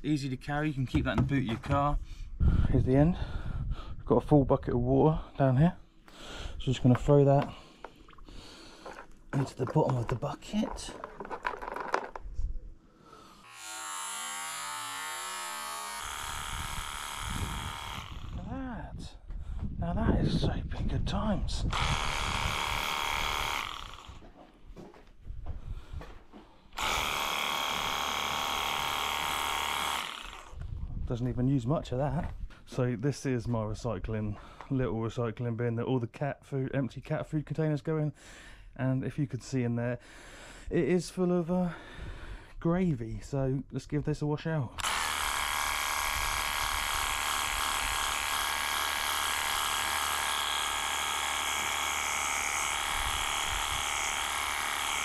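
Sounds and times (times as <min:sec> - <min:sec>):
pressure washer running: 0:13.5 - 0:18.4, 0:21.7 - 0:24.2, 0:26.8 - 0:30.6, 0:44.8 - 0:55.0.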